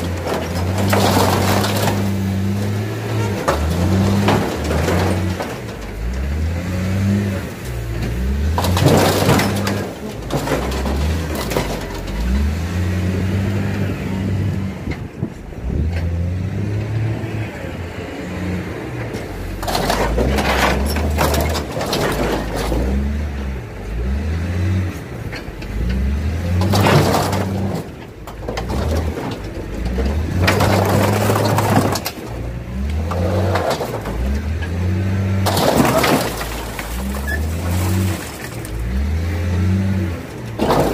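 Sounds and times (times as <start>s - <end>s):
sheet metal crunching and tearing: 0.0s - 13.0s, 19.1s - 23.2s, 25.2s - 40.9s
heavy machine engine: 0.0s - 40.9s.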